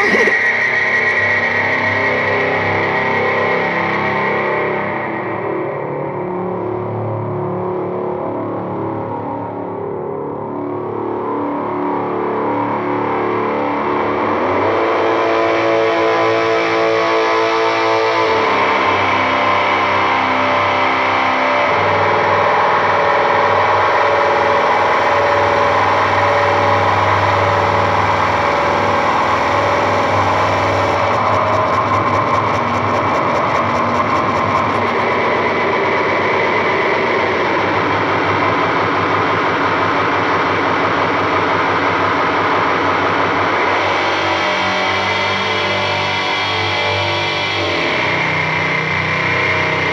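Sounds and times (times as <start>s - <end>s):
droning pitched tones: 21.8s - 49.9s
harsh noise music: 27.8s - 49.9s.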